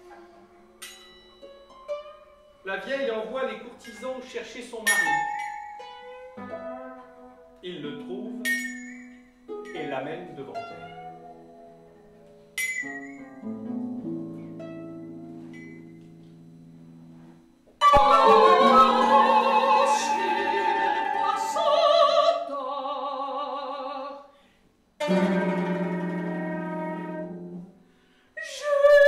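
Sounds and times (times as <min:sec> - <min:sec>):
plucked strings ensemble: 0:09.5 - 0:15.6, 0:17.8 - 0:22.0, 0:25.0 - 0:27.7
woman singing operatically: 0:17.8 - 0:24.2, 0:28.4 - 0:29.0.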